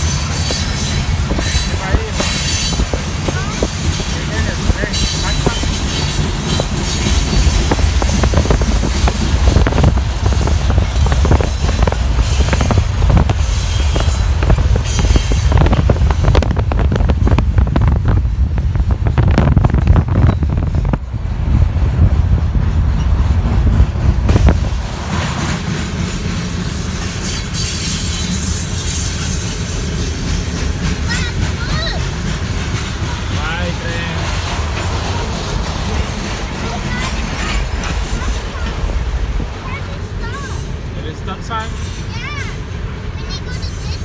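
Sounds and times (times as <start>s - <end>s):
wheel clicks and clanks on rail joints: 0.0s - 18.2s, 19.0s - 40.8s
freight train rumbling past: 0.0s - 44.0s.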